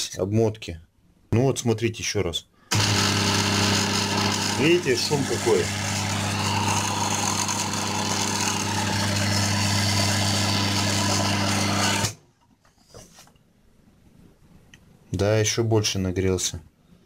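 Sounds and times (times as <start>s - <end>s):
electric motor humming: 2.7s - 12.2s.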